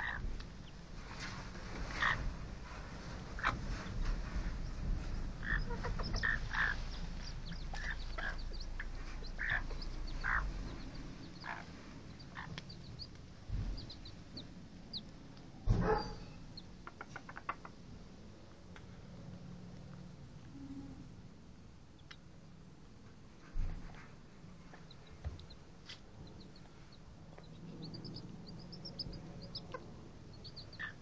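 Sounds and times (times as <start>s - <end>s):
hen clucking: 0.0s - 0.5s, 1.8s - 2.4s, 3.4s - 4.0s, 5.3s - 15.4s, 16.5s - 17.8s, 26.2s - 31.0s
chicks peeping: 0.0s - 17.8s, 21.9s - 22.4s, 24.5s - 31.0s.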